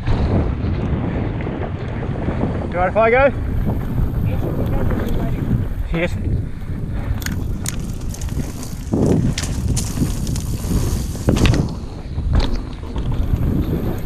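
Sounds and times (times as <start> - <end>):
bike knocking and rattling: 0.0 - 14.0
wind rumble on microphone: 0.0 - 14.0
tyres on dirt: 3.4 - 14.0.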